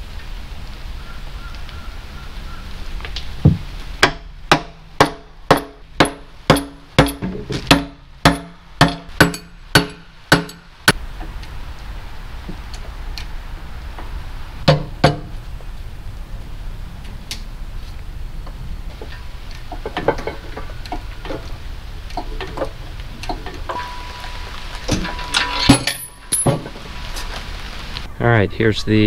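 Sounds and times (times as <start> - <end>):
hammer blows on metal: 3.5 - 10.8.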